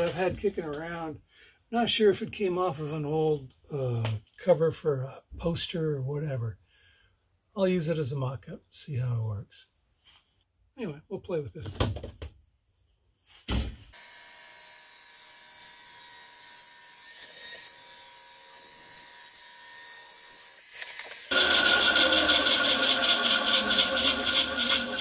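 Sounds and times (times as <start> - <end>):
bandsaw running: 14.0 - 25.0
bandsaw blade cutting plastic: 20.1 - 25.0.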